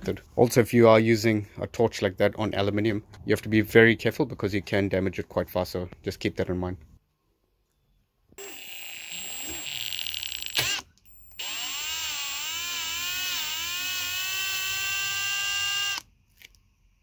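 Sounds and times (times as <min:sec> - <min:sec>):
electric drill motor whining: 0:08.4 - 0:16.1.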